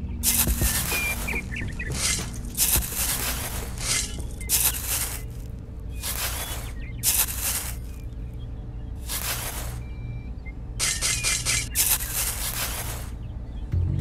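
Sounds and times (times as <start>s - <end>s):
low steady hum: 0.0s - 14.0s
hand tool scraping dry sand: 0.2s - 8.0s, 9.0s - 9.8s, 11.6s - 13.2s.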